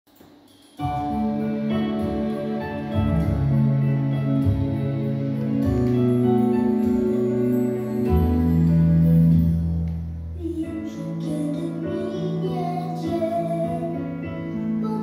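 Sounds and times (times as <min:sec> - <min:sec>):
held chords: 0:00.1 - 0:15.0
deep bass line: 0:00.9 - 0:10.4.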